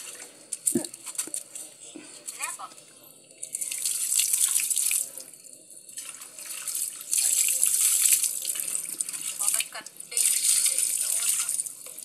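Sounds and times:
water pouring and splashing: 0.0 - 1.5, 3.4 - 12.0.

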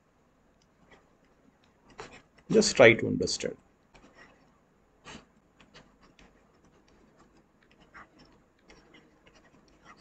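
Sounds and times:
stylus scratching on pen tablet: 0.8 - 2.7, 3.9 - 10.0.

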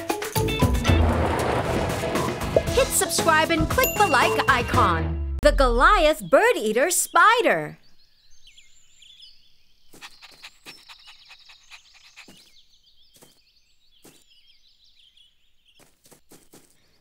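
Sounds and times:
small birds chirping: 5.8 - 17.0.

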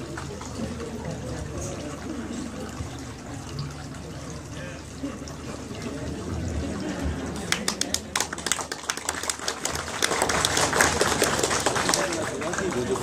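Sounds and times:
audience clapping: 0.0 - 0.8, 7.2 - 13.0.

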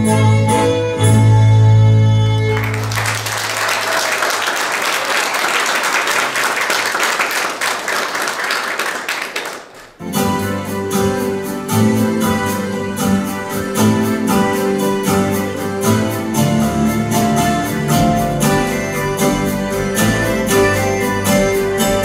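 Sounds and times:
folk dance music: 0.0 - 22.0
audience applause: 2.5 - 10.0.

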